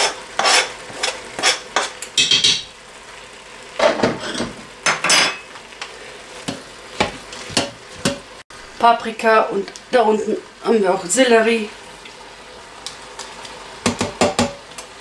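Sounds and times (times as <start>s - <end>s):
spoon knocking on cutting board: 2.2s - 2.7s, 13.8s - 14.6s.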